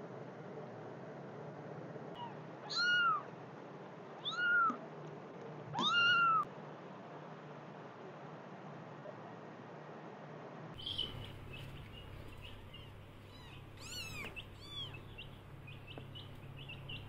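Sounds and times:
kitten meowing: 0:02.2 - 0:03.3, 0:04.2 - 0:04.8, 0:05.7 - 0:06.5, 0:13.3 - 0:15.0.

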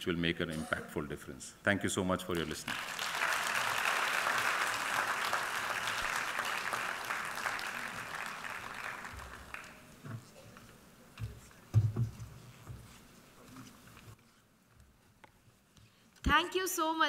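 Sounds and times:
audience applauding: 0:02.4 - 0:10.3.

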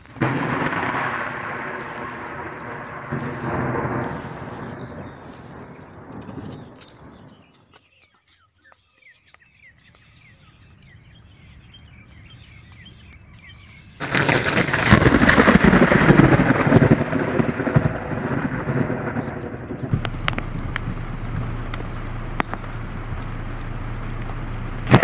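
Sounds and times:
loud rough rumbling: 0:00.0 - 0:07.4, 0:14.0 - 0:25.0
faint bird chirps: 0:02.2 - 0:14.1, 0:17.5 - 0:24.8.

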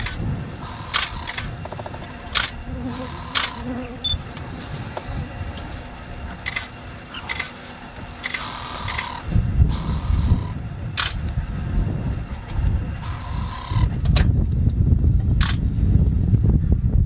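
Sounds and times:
steady low rumble: 0:00.0 - 0:17.0
camera shutters clicking: 0:03.3 - 0:03.6, 0:11.0 - 0:11.2.

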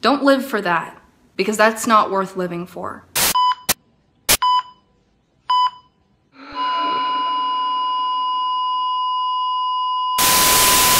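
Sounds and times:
heart monitor beeping: 0:03.4 - 0:03.8, 0:05.5 - 0:10.9
heart monitor flatline tone: 0:05.5 - 0:10.9.

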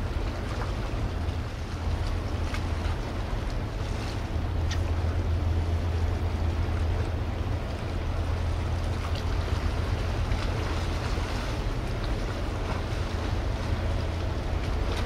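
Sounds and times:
ship engines droning: 0:00.0 - 0:15.0
water washing: 0:00.0 - 0:15.0.

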